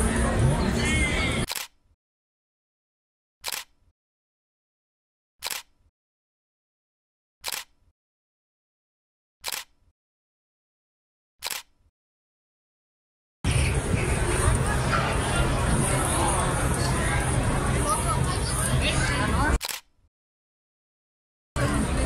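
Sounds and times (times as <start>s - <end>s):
camera shutter clicks: 1.5s - 1.8s, 3.4s - 3.7s, 5.4s - 5.7s, 7.4s - 7.7s, 9.4s - 9.8s, 11.4s - 11.8s, 19.6s - 19.9s.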